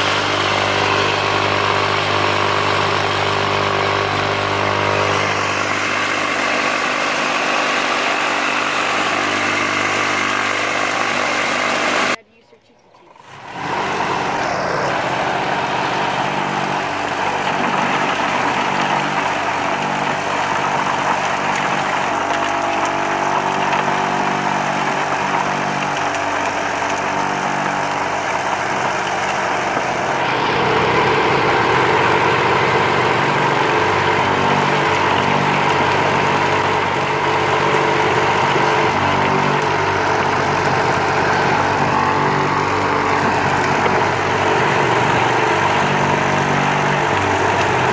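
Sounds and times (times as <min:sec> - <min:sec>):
vibrating motor humming: 0:00.0 - 0:12.2, 0:13.0 - 0:47.9.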